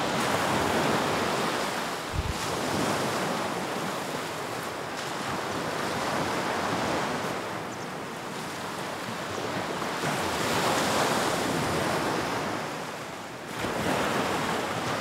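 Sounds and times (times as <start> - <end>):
ocean waves washing on beach: 0.0 - 15.0.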